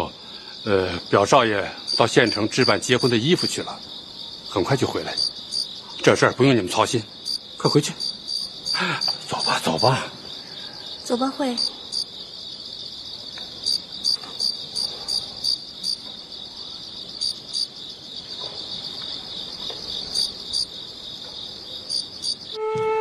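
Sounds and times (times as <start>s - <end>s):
crickets chirping: 0.0s - 23.0s
soft flute melody: 22.6s - 23.0s.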